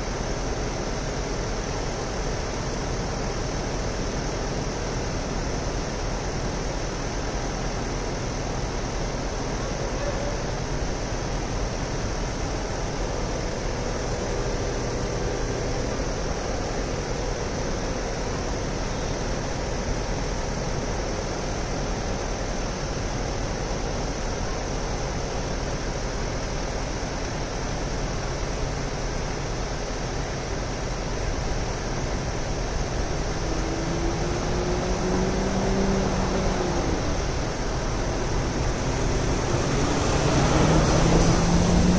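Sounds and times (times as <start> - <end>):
city street hiss and hum: 0.0 - 41.9
vehicle engine approaching: 32.8 - 41.9.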